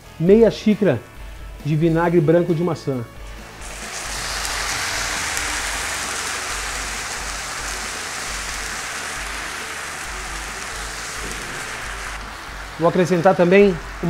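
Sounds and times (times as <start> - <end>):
vinegar sizzling in frying pan: 3.3 - 14.0.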